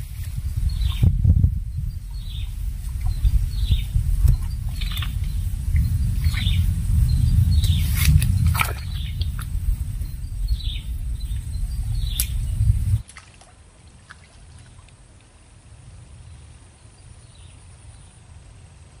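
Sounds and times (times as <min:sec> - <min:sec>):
heavy rumble on microphone: 0:00.0 - 0:13.0
faint outdoor background noise: 0:00.0 - 0:19.0
sharp clicks: 0:12.1 - 0:12.4.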